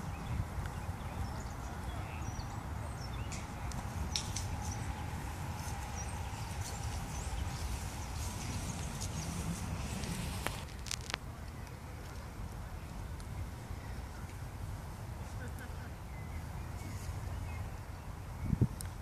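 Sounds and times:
birds chirping and singing: 0.0 - 10.6
wind buffeting microphone: 0.0 - 15.2, 16.0 - 19.0.

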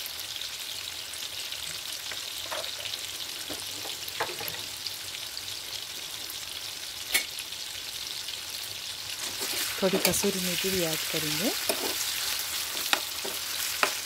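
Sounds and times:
chicken sizzling in oil: 0.0 - 14.0.

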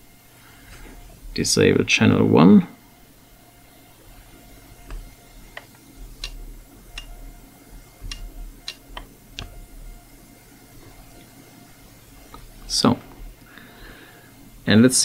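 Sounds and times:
push-buttons clicking: 4.8 - 7.2, 8.0 - 9.6.

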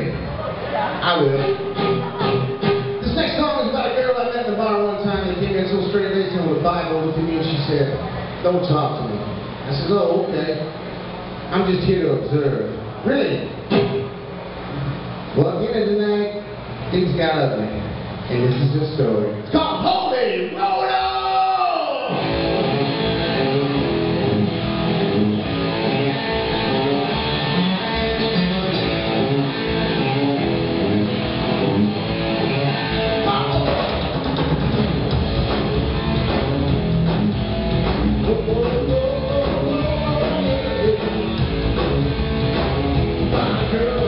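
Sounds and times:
live rock band playing: 1.1 - 3.8, 13.7 - 14.2, 22.1 - 44.0.

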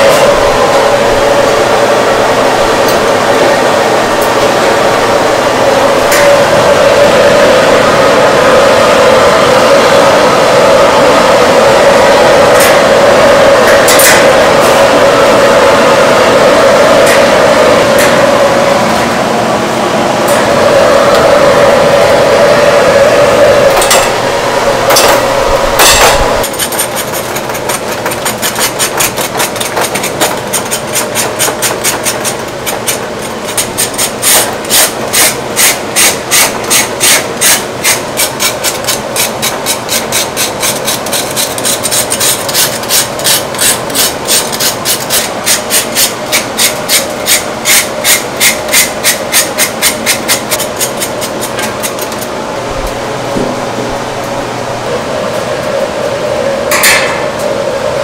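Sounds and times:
blade scraping crackling skin: 26.4 - 52.2.

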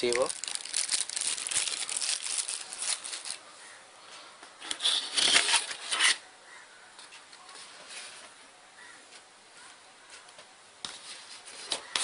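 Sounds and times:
plastic bag crinkling: 0.0 - 3.4.

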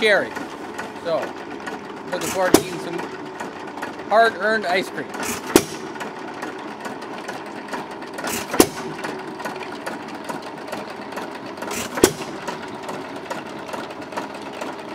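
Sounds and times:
chain drive clattering: 0.0 - 14.9
engine firing with sharp bang: 2.2 - 3.5, 5.1 - 6.6, 7.3 - 10.0, 11.6 - 13.0.

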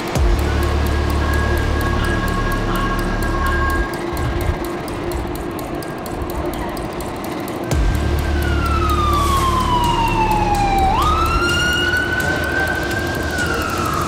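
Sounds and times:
low rumble of city traffic: 0.0 - 14.0
ambulance siren wailing: 8.0 - 14.0.

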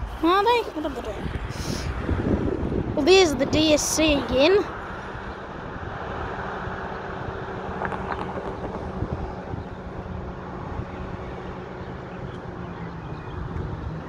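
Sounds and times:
locomotive diesel engine humming: 3.0 - 14.0.

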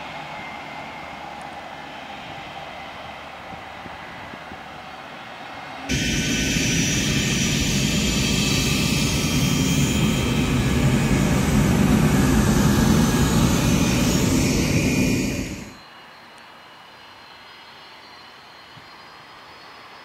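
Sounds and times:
jet engines roaring at takeoff: 5.8 - 15.8.

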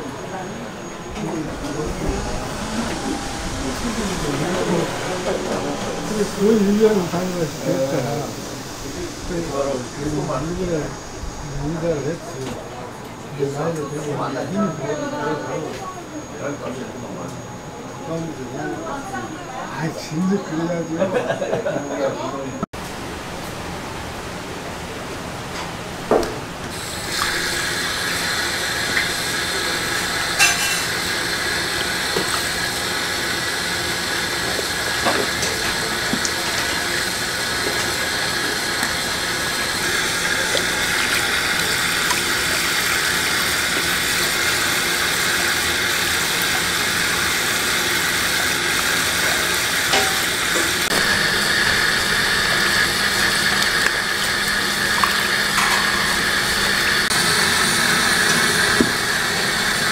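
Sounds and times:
tap water running into sink: 34.4 - 39.0, 39.8 - 45.2, 49.9 - 56.8.

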